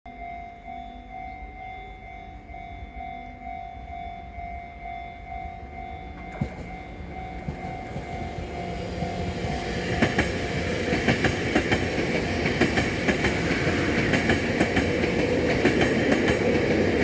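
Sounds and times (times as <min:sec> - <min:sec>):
train rumble and whine: 0:00.1 - 0:17.0
wheels clicking over rail joints: 0:06.2 - 0:17.0.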